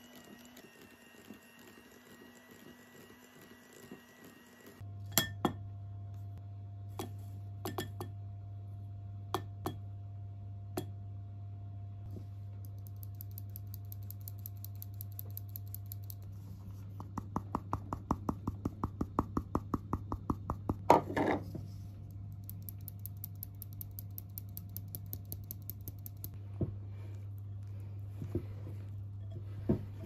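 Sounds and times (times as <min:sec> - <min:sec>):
steady low hum: 0:04.6 - 0:30.0
sieve ticking and tapping: 0:12.6 - 0:16.2, 0:22.3 - 0:26.4.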